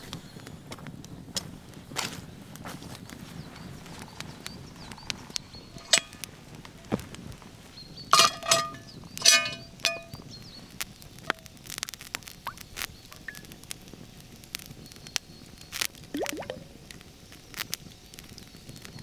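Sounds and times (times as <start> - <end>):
burning logs crackling: 0.0 - 19.0
metal pot clanking on iron stand: 5.8 - 6.2, 8.1 - 10.2.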